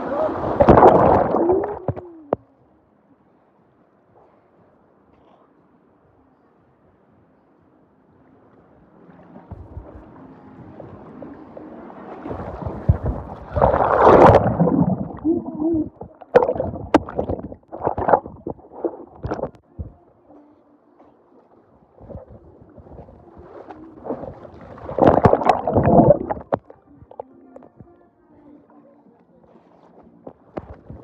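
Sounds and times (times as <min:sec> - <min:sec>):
water splashing against microphone: 0:00.0 - 0:02.4, 0:09.2 - 0:20.0, 0:21.3 - 0:27.8.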